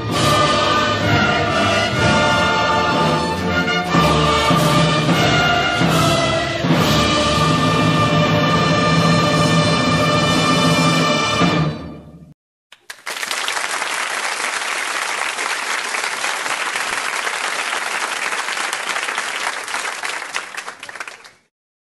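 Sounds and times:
music: 0:00.0 - 0:12.4
crowd applauding: 0:12.7 - 0:21.5.

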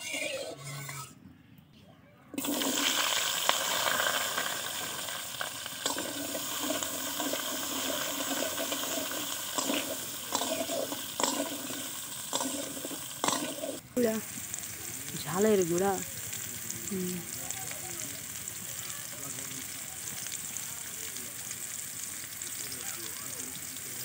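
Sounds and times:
steel spatula scraping: 0:00.0 - 0:01.2
potatoes sizzling in hot oil: 0:02.4 - 0:24.0.

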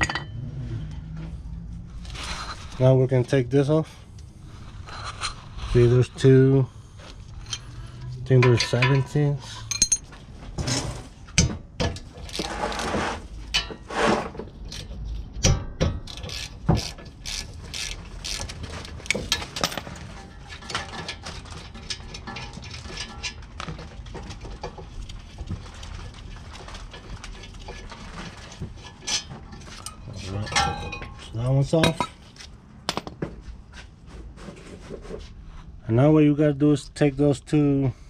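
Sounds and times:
ratchet wrench clicking: 0:16.1 - 0:19.2.

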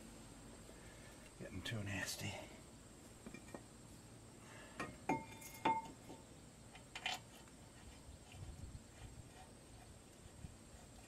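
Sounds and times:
light metallic clinks: 0:04.8 - 0:06.1.

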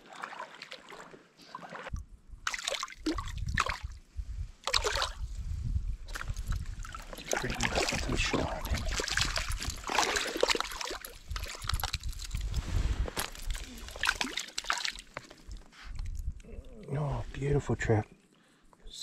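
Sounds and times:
river water splashing: 0:00.0 - 0:01.9, 0:02.5 - 0:03.8, 0:06.1 - 0:12.4, 0:13.2 - 0:15.4.

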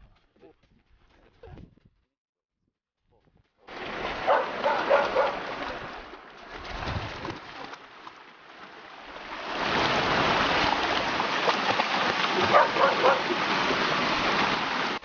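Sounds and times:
dogs splashing through water: 0:03.7 - 0:15.0
water rushing over rocks: 0:03.7 - 0:15.0.

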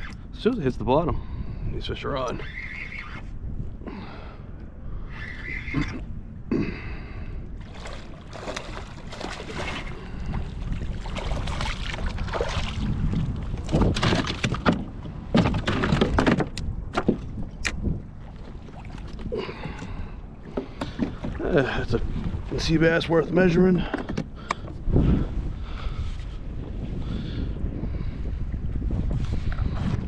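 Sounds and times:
steady low rumble: 0:03.2 - 0:15.4
water splashing: 0:07.6 - 0:14.6.

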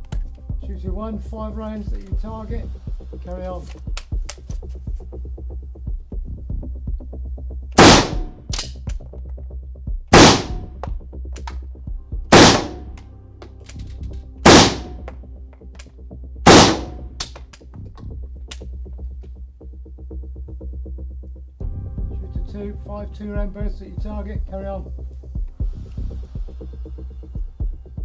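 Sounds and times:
background music with steady beat: 0:00.0 - 0:28.0
rifle shots ringing indoors: 0:07.8 - 0:08.8, 0:10.1 - 0:10.7, 0:12.3 - 0:13.0, 0:14.4 - 0:15.1, 0:16.5 - 0:17.4.

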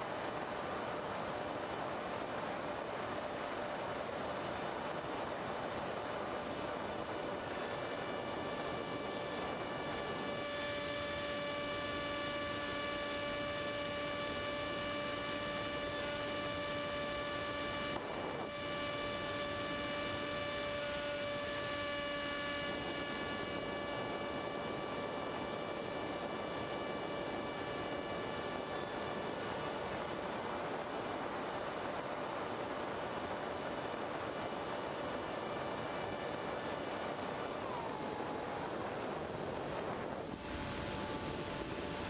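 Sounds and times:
model plane motor whine: 0:00.0 - 0:42.0
wind noise: 0:00.0 - 0:42.0.

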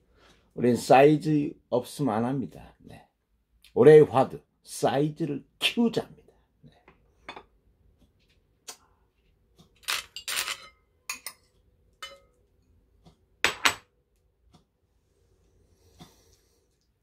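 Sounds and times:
metal spoon clinking on ceramic bowls: 0:10.1 - 0:12.5.

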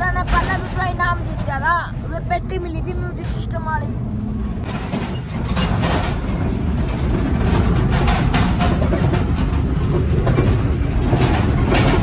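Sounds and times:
tractor engine rumbling: 0:00.0 - 0:12.0
metal trolley rattling: 0:04.6 - 0:12.0.

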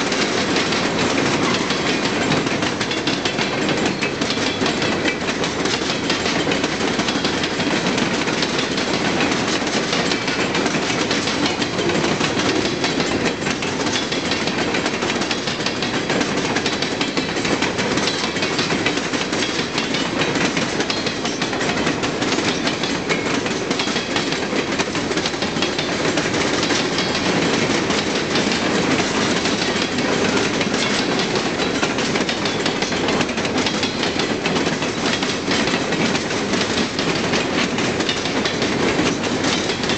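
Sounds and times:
freight train wheels clattering: 0:00.0 - 0:39.9.

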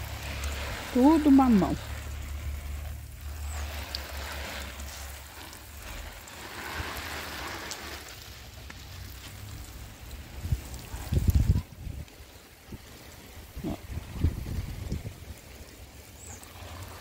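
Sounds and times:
wind buffeting microphone: 0:10.1 - 0:15.7.

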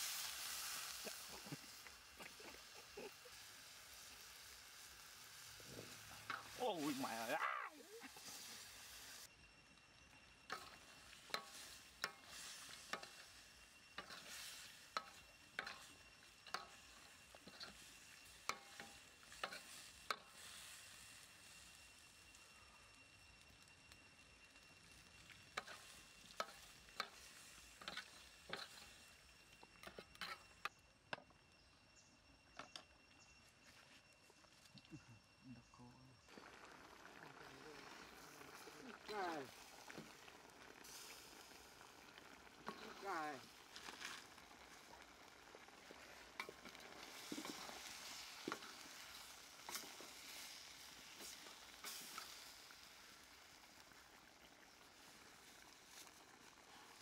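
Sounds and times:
faint sizzle: 0:00.0 - 0:57.0
metal ladle scraping wok: 0:10.5 - 0:20.3.

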